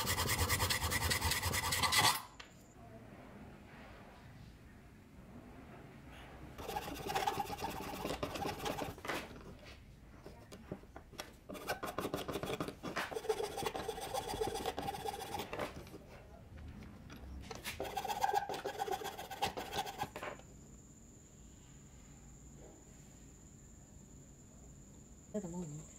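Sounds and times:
hand file rasping on metal: 0:00.0 - 0:02.3, 0:06.6 - 0:09.0, 0:11.5 - 0:15.9, 0:17.7 - 0:20.2.

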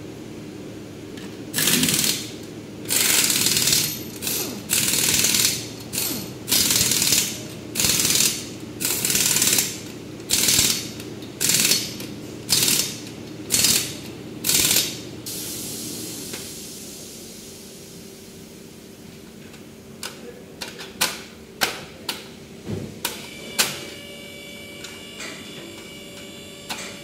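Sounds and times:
impact wrench rapid hammering: 0:01.6 - 0:15.0.

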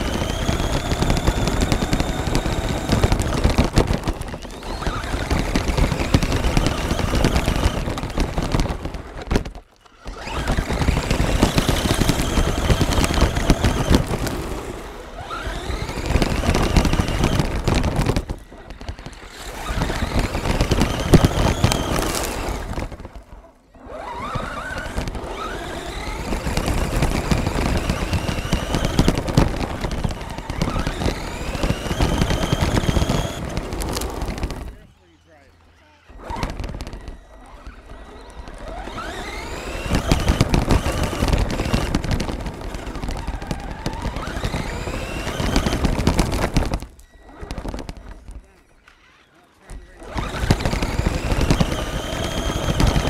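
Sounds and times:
toy truck motor whining: 0:00.0 - 0:53.0
rattle of stones on gravel: 0:15.5 - 0:23.4, 0:24.5 - 0:34.9.

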